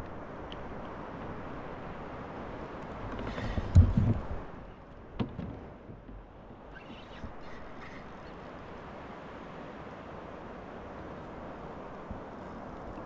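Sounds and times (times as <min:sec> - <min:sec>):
hiss of wind and water: 0:00.0 - 0:13.0
dull thumps on plastic kayak: 0:03.3 - 0:04.4, 0:05.1 - 0:06.2.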